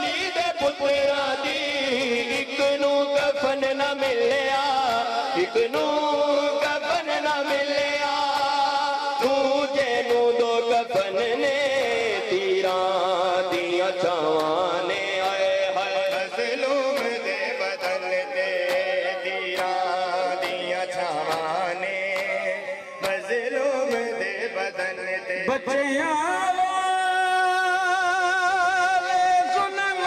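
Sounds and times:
man singing drawn-out notes: 0:00.0 - 0:30.0
hands slapping on chests: 0:13.5 - 0:24.1.

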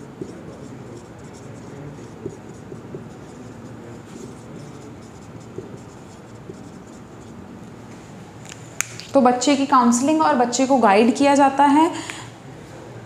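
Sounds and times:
marker pen writing on whiteboard: 0:00.0 - 0:07.8.

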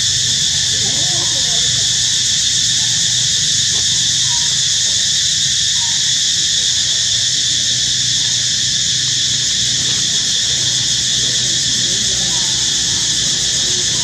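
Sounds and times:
high-pitched insect chorus: 0:00.0 - 0:14.0.

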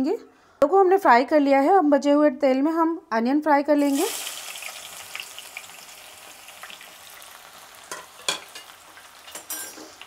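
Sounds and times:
onions sizzling in oil: 0:03.8 - 0:10.0.

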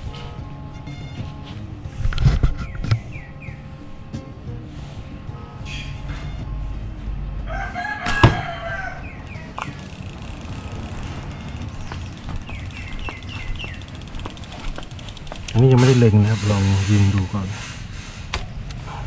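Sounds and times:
rooster crowing: 0:07.4 - 0:09.3
high bird chirps: 0:11.2 - 0:14.7.

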